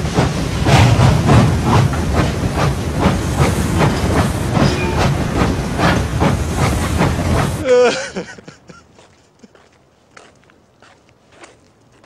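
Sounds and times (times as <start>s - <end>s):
steam locomotive chuffing: 0.0s - 7.7s
low train rumble: 0.0s - 8.7s.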